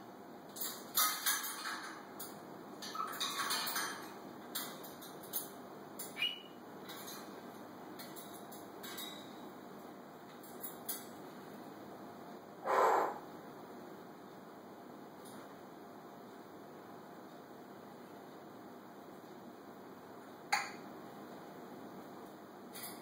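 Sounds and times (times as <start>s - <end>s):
parrot whistling: 6.2s - 6.6s.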